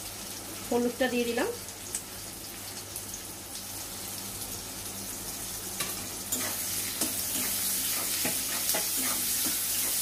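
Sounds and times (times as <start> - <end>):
vegetables sizzling in hot oil: 0.0 - 10.0
metal spatula scraping: 6.3 - 10.0.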